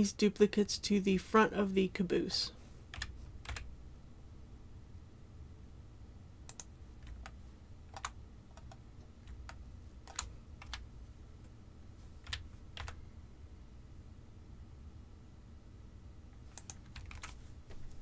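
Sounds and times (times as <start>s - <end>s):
faint low hum: 0.0s - 18.0s
keyboard and mouse clicks: 6.5s - 10.9s, 12.2s - 13.0s, 16.4s - 17.4s.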